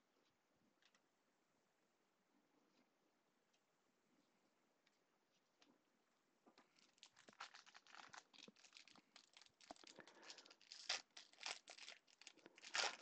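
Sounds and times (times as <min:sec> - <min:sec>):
foil wrapper crinkling and tearing: 0:06.6 - 0:13.0.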